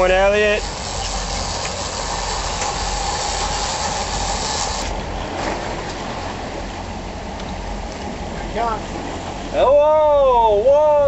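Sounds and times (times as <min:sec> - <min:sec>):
boat engine hum: 0:00.0 - 0:11.0
rushing wake and wind: 0:00.0 - 0:11.0.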